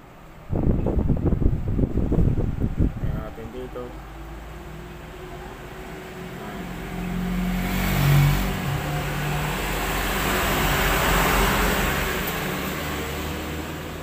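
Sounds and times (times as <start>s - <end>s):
vehicle passing by: 2.2s - 14.0s.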